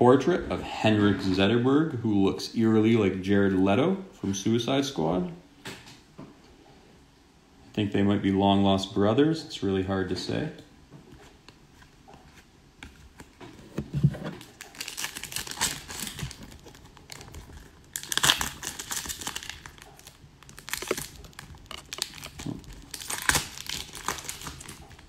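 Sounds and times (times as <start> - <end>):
foil wrapper tearing and crinkling: 14.4 - 25.0.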